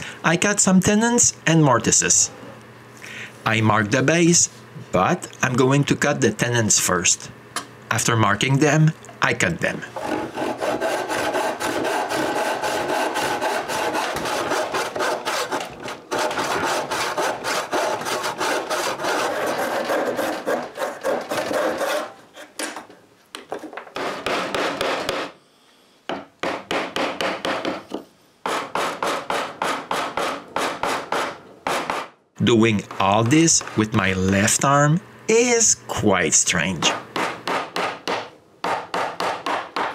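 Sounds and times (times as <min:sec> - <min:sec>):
hand saw cutting wood: 0:10.0 - 0:22.6, 0:28.5 - 0:32.1.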